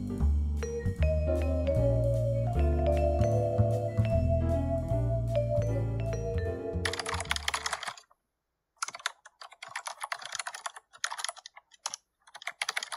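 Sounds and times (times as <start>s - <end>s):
background music: 0.0s - 7.6s
laptop keyboard typing: 6.8s - 8.1s, 8.8s - 12.9s.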